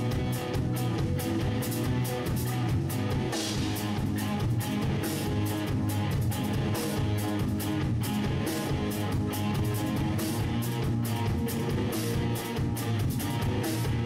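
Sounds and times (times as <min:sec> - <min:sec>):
drum kit: 0:00.0 - 0:14.0
electric guitar chords: 0:00.0 - 0:14.0.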